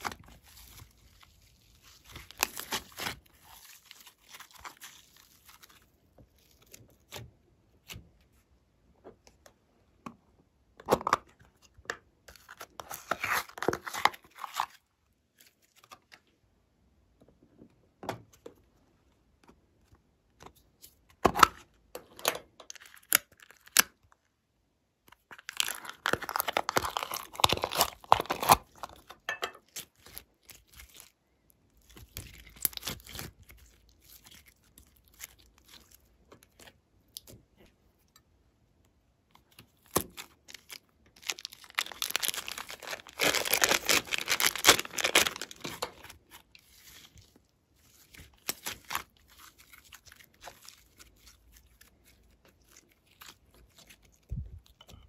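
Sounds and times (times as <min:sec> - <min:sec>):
plastic crinkling: 0:00.0 - 0:06.9, 0:25.3 - 0:31.1, 0:40.0 - 0:54.9.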